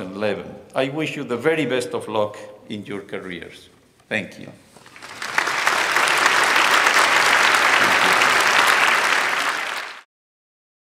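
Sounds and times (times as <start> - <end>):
large audience applauding: 4.8 - 10.1.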